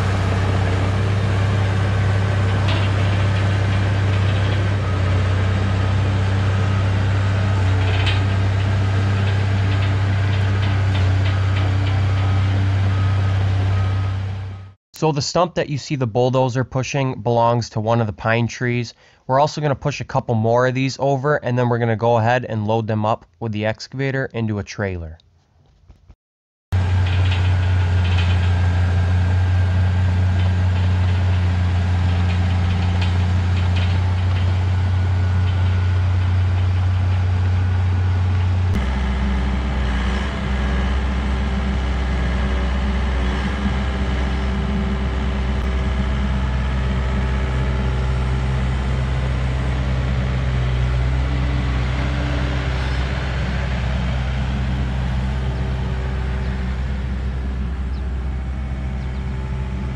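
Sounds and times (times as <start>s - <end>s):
heavy diesel engine running: 0.0s - 14.8s, 26.7s - 59.9s.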